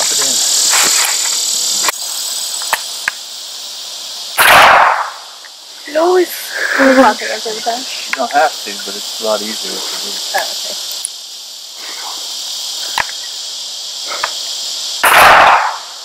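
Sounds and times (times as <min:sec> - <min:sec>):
insects chirring: 0:00.0 - 0:16.0
sharp crack: 0:04.4 - 0:05.5, 0:15.0 - 0:16.0.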